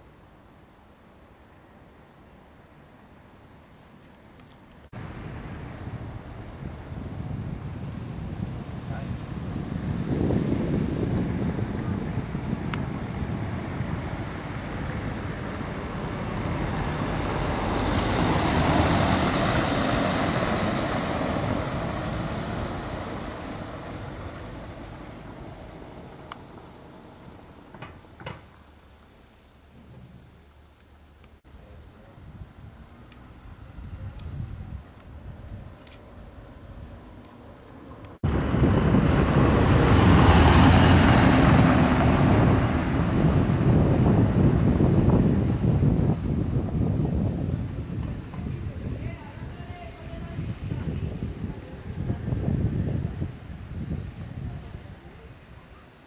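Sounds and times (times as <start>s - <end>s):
wind buffeting microphone: 4.9s - 28.5s, 31.7s - 37.2s, 37.9s - 55.6s
motor vehicle passing: 5.0s - 28.2s, 35.2s - 49.0s.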